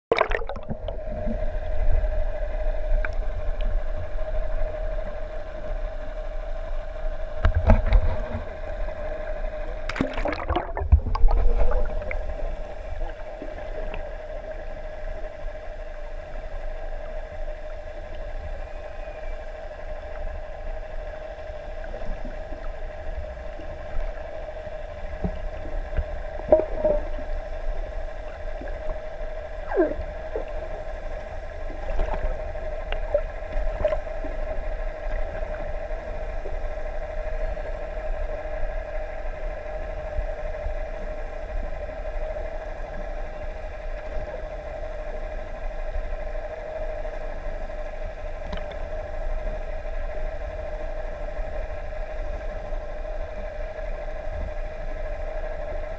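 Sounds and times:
boat engine humming underwater: 0.1 - 55.9
whale calls: 18.5 - 20.4, 24.9 - 34.7.

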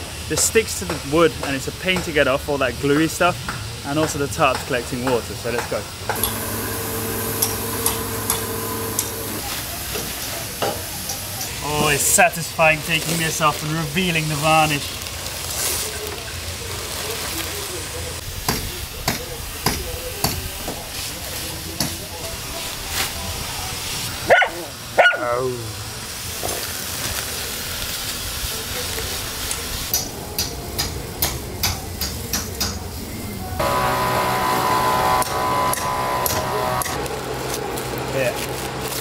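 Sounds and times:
steady pitched hum: 6.1 - 9.4, 33.6 - 37.0
dog barking: 24.3 - 25.2
masking tape peeling off wood: 34.7 - 39.0.

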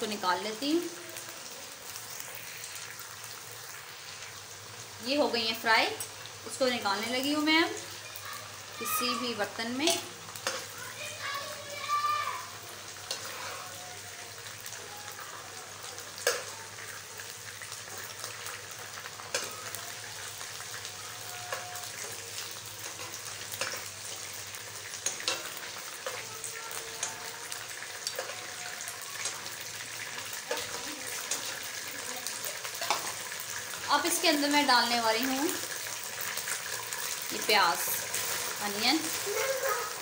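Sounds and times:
chicken sizzling in hot oil: 0.0 - 40.0
spatula scraping a pan: 13.1 - 13.8.

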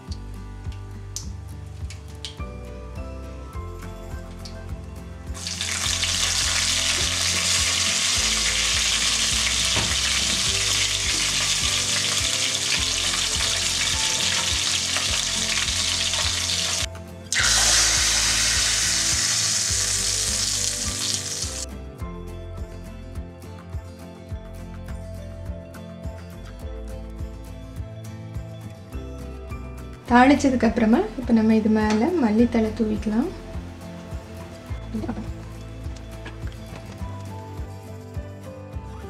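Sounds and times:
soft background music: 0.0 - 39.0
hot oil sizzling in pan: 5.4 - 21.6.

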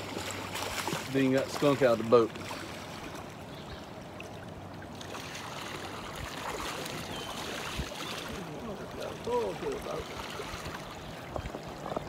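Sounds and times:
fish splashing at surface: 0.0 - 1.8
river water rushing: 0.0 - 12.0.

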